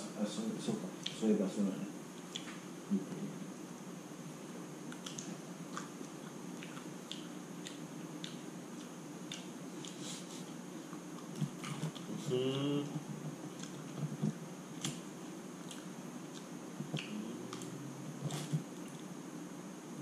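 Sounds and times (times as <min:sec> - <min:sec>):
low room hum: 0:00.0 - 0:20.0
chewing: 0:04.9 - 0:12.2, 0:13.6 - 0:14.2, 0:15.6 - 0:19.1.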